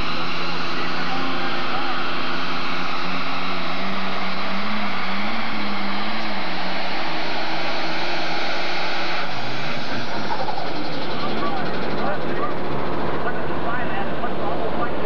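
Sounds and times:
tractor engine at full power: 0.0s - 15.0s.

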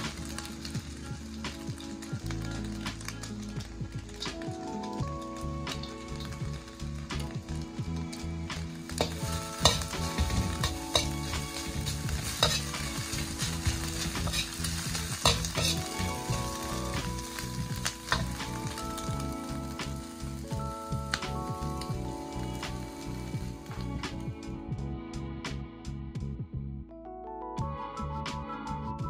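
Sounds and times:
food sizzling in a wok: 0.0s - 24.3s
spatula scraping a wok: 8.8s - 18.4s
spatula clacking against wok: 8.9s - 15.8s.

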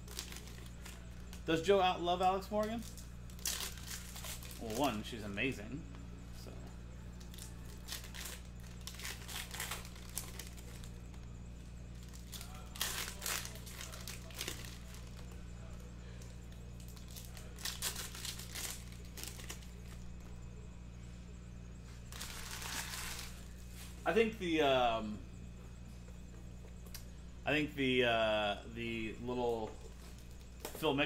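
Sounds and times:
wrappers crinkling: 0.0s - 5.0s, 7.1s - 20.1s, 22.0s - 23.9s
steady low hum: 0.0s - 31.0s.

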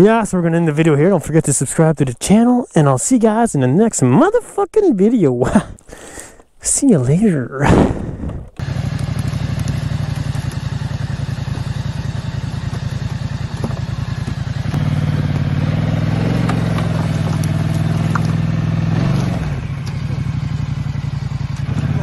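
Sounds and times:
atv engine revving: 7.7s - 22.0s.

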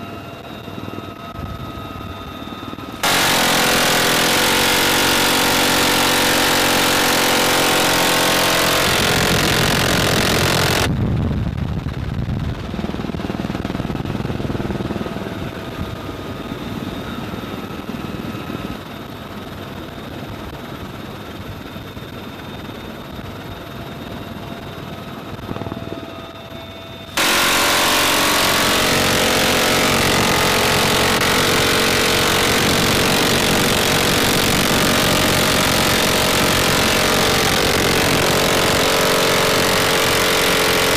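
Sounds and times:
helicopter rotor and turbine: 0.0s - 40.9s
machine gun firing: 3.0s - 10.9s, 27.1s - 40.9s.

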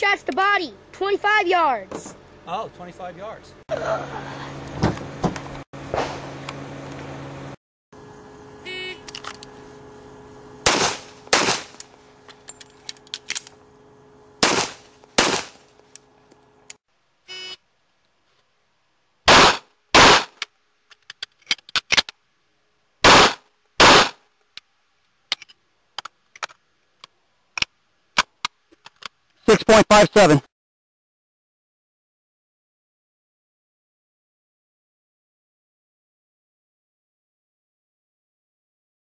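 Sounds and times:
pistol shots: 10.6s - 11.8s, 14.4s - 15.6s, 19.3s - 20.4s, 23.0s - 24.2s.

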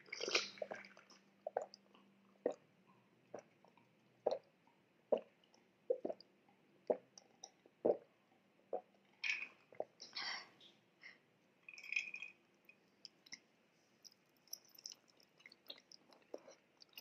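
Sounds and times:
person gulping drink: 0.0s - 2.6s, 3.3s - 4.5s, 5.1s - 6.3s.

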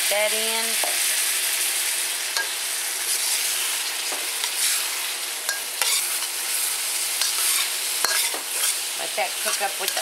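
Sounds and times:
vegetables sizzling in oil: 0.0s - 10.0s
spatula scraping wok: 0.8s - 10.0s.

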